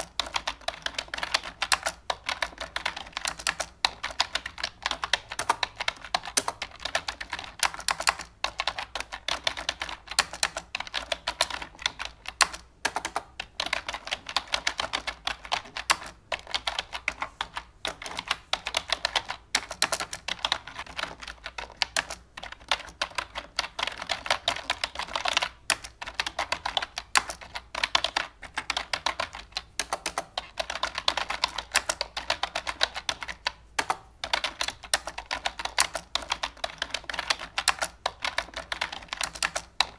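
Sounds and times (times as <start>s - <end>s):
fast clicking like typing: 0.0s - 39.9s.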